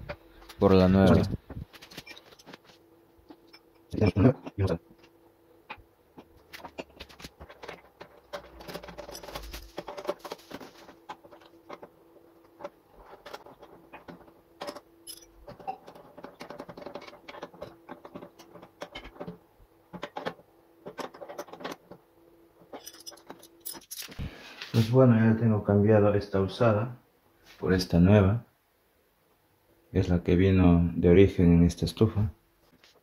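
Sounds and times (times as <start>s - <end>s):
faint steady hum: 0.0s - 33.0s
spanners clinking on metal nut: 14.6s - 16.0s, 22.7s - 24.2s.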